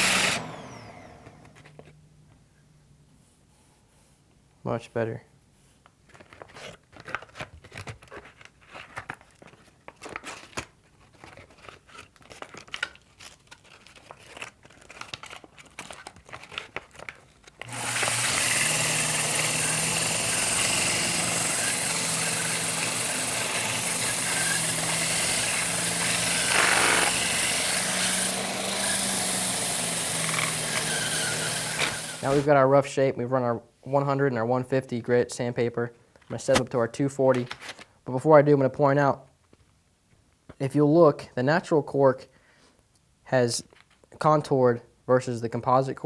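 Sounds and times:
lathe motor hum: 0.0 - 1.4, 17.6 - 32.4.

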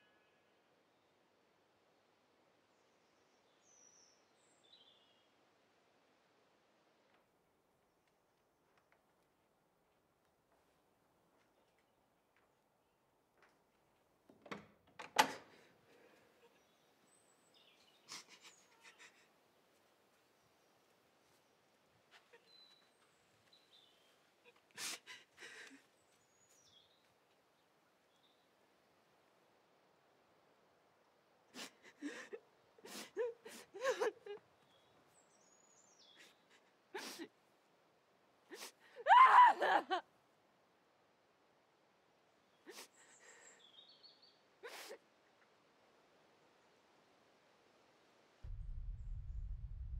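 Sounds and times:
faint bird chirp: 0.0 - 1.2, 2.7 - 5.4, 16.0 - 19.4, 20.2 - 24.8, 25.6 - 29.5, 34.6 - 37.3, 42.3 - 45.0
door latch clicking and rattling: 14.3 - 15.6
sniffing gasp: 18.0 - 19.3
woman crying: 18.1 - 19.3, 24.4 - 25.8, 31.5 - 34.4, 36.2 - 37.4, 38.5 - 40.1, 42.7 - 43.4, 44.6 - 45.0.

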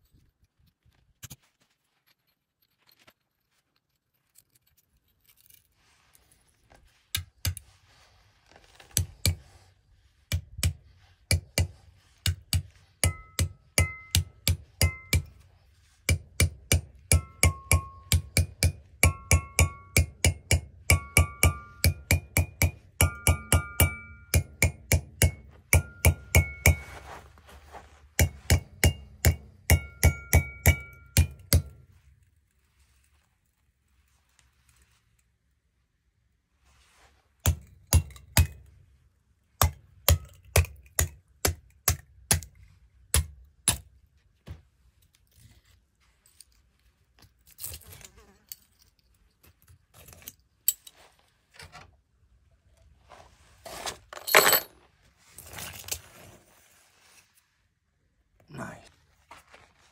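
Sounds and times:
sledge striking steel wedges: 16.1 - 27.2, 28.2 - 31.8.

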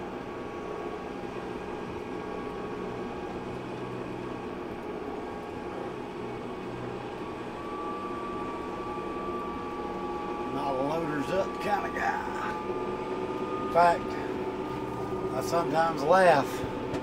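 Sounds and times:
tractor engine running: 8.5 - 17.0.

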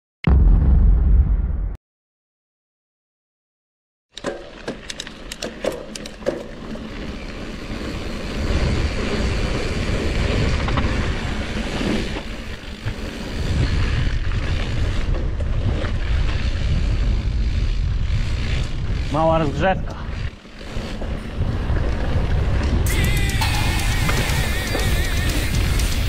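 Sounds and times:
bike clicks and rattles: 4.1 - 26.0
bike tyres rolling on gravel: 4.4 - 26.0
wind rumble on microphone: 7.6 - 26.0.

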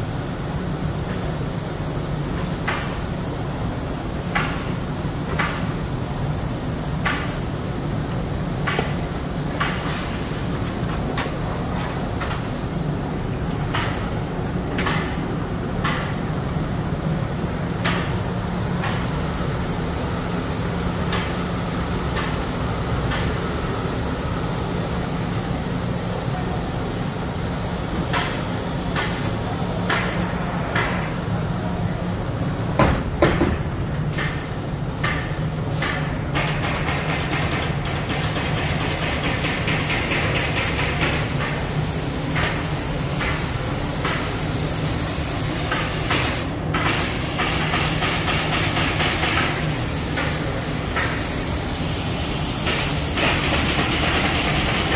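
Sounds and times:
sharp knocks: 32.8 - 33.6
air hissing: 38.1 - 54.9.

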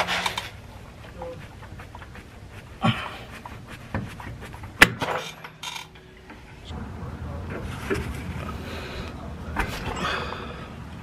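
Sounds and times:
gloved hands scraping and rustling: 0.0 - 5.0.

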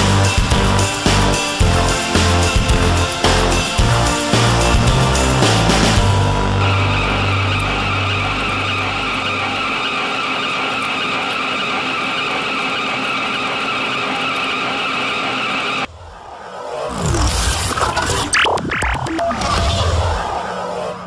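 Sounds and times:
background music: 0.0 - 10.0
lathe cutting tool whine: 0.0 - 15.9.

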